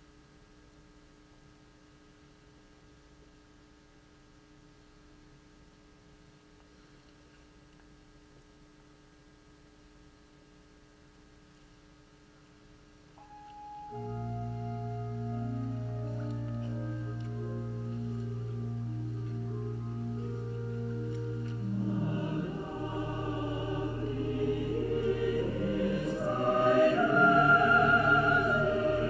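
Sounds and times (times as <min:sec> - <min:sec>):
organ music: 0:13.2 - 0:29.0.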